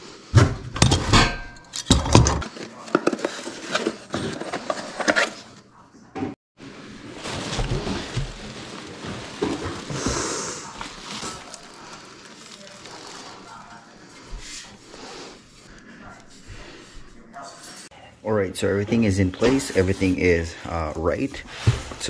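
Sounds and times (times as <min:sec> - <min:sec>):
packaging crackling and rustling: 0:06.8 - 0:13.9.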